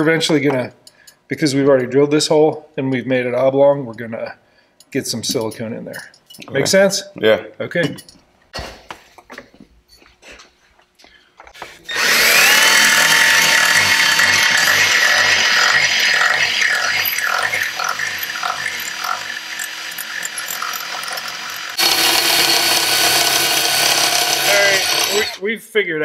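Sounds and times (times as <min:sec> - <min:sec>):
drill cutting into metal: 0:11.8 - 0:25.4.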